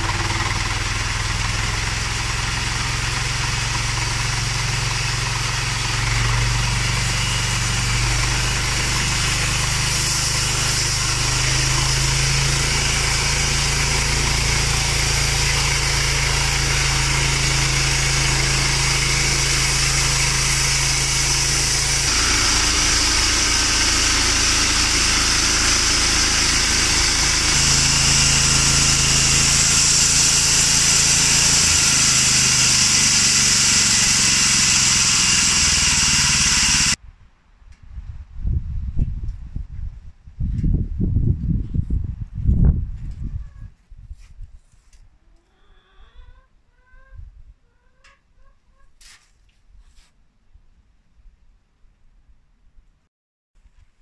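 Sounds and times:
small engine hum: 0.0s - 37.0s
band saw blade hissing through log: 2.9s - 37.0s.

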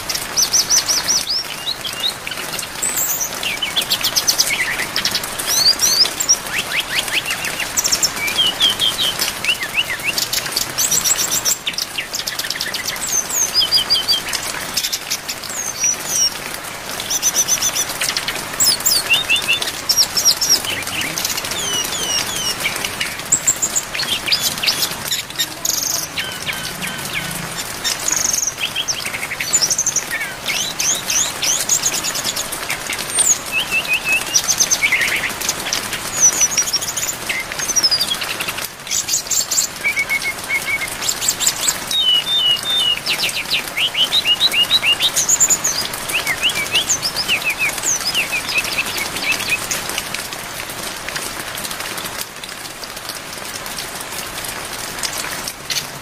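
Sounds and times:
rain hiss: 0.0s - 56.0s
bird singing whistled phrases: 2.9s - 10.2s, 18.6s - 27.4s, 33.2s - 35.3s, 39.0s - 49.7s.

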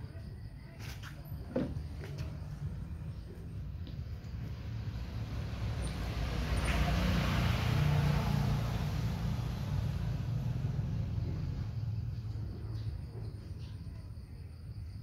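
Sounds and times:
motor vehicle passing: 1.8s - 13.4s.

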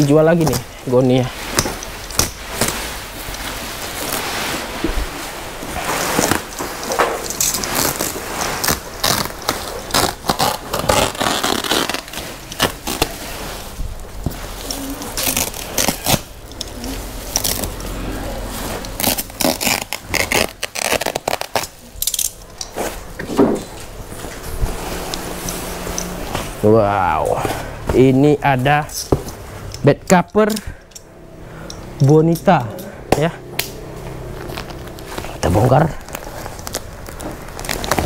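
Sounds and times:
plastic sack rustling and scraping: 0.0s - 29.7s, 34.2s - 38.0s
stitching ripping: 1.3s - 13.8s, 14.4s - 23.1s, 33.6s - 38.0s.

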